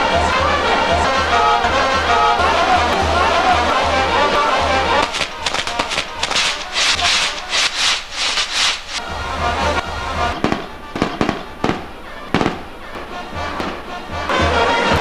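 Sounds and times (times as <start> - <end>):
band music: 0.0 - 7.6, 9.0 - 15.0
firework fountains hissing and crackling: 4.8 - 9.1, 9.7 - 12.8
firework bangs: 5.0 - 9.2, 10.2 - 15.0.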